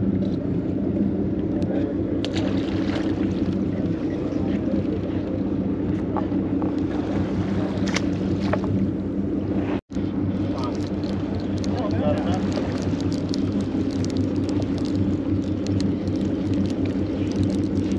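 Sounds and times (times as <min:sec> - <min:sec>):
boat engine humming: 0:00.0 - 0:17.9
fishing tackle clicks: 0:10.6 - 0:17.9.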